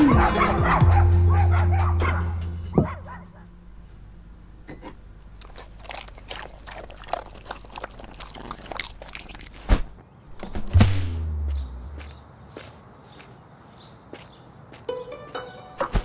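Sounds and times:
cat chewing food: 5.2 - 9.7
sharp thump: 9.7 - 12.0
low thud: 9.7 - 12.2.

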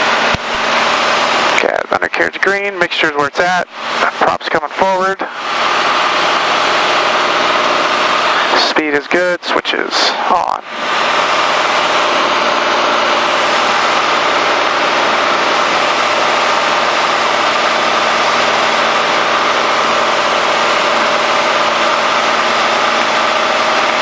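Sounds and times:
airplane engine and propeller droning: 0.0 - 24.0.

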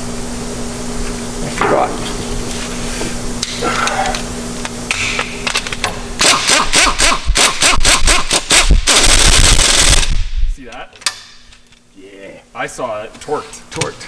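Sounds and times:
pneumatic impact wrench hammering: 4.9 - 10.2.

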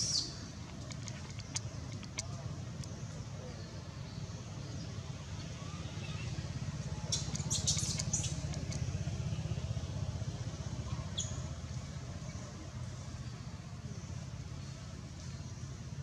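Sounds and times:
steady low rumble: 6.3 - 14.0.

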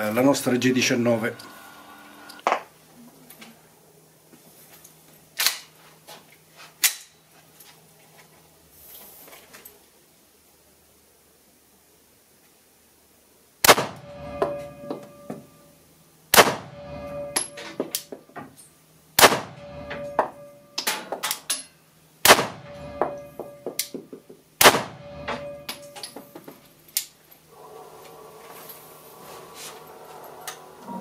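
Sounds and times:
extractor fan humming: 0.0 - 2.5, 27.5 - 31.0
pistol shots with echo: 13.6 - 14.0, 16.3 - 16.7, 19.2 - 19.6, 22.2 - 22.7, 24.6 - 25.0.

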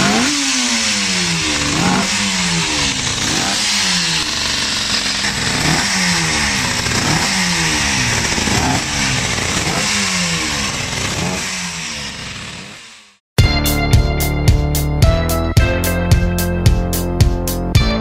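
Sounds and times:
racing motorcycle engine revving: 0.0 - 13.2.

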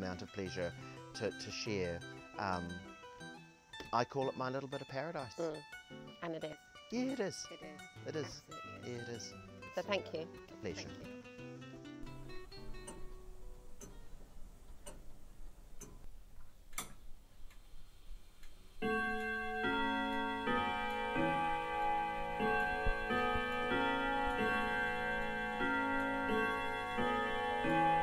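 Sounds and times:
music of sustained ringing notes: 0.0 - 14.2, 18.8 - 28.0.

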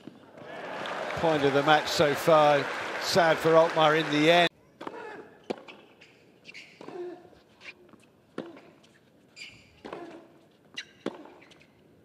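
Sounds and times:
shoes squeaking on court: 4.7 - 12.0
tennis racket hitting ball: 8.0 - 8.8, 9.7 - 11.6.

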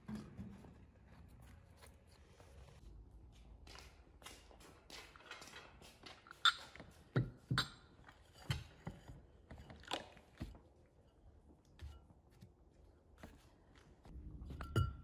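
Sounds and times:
ceramic bowls clacking: 14.4 - 15.0.

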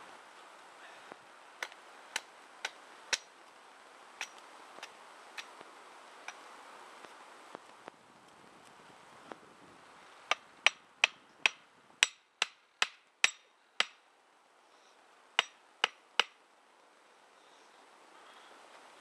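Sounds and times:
stake being hammered into ground: 1.6 - 3.3, 4.2 - 5.5, 10.3 - 14.0, 15.4 - 16.4.

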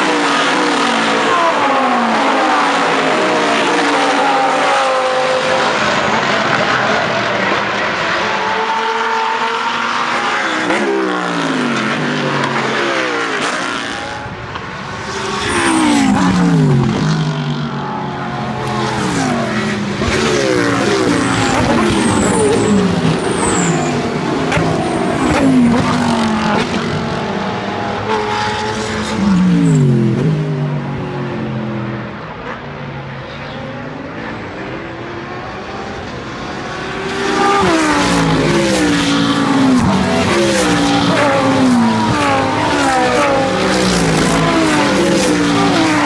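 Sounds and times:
race cars passing by: 0.0 - 46.0.

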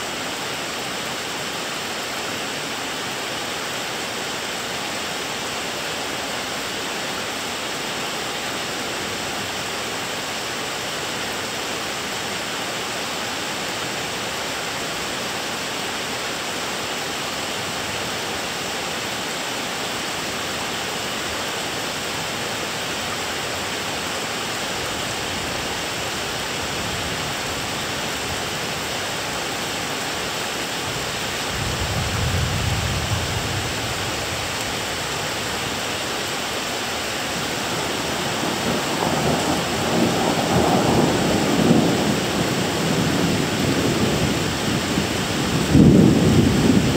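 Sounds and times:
steady rain: 0.0 - 46.9
thunder rumble: 31.5 - 35.0, 37.8 - 46.9.

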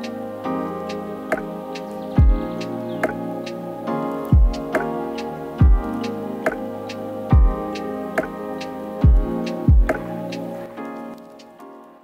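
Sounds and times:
sustained chords: 0.0 - 11.2
deep kick drum hits: 2.2 - 2.5, 4.4 - 4.7, 5.6 - 5.9, 7.3 - 7.6, 9.0 - 9.9.

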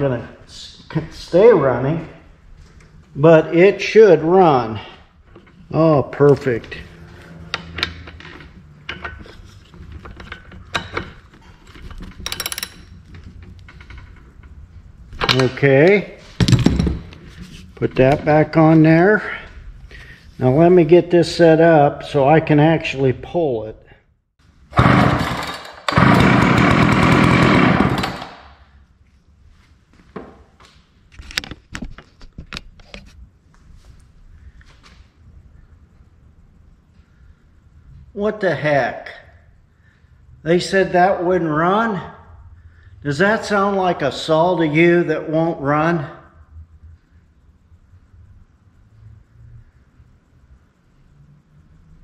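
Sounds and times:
hand tools clicking on metal: 10.0 - 14.2
chainsaw pull-started and running: 24.7 - 28.5.

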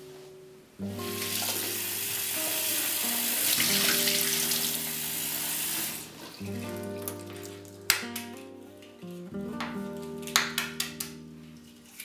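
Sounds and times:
tap water running into saucepan: 1.1 - 6.1.

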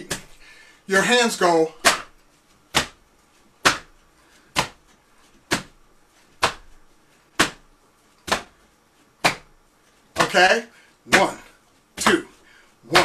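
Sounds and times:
hand slaps: 0.0 - 0.4, 1.8 - 3.0, 3.6 - 8.6, 9.2 - 9.6, 10.2 - 10.4, 11.1 - 11.4.

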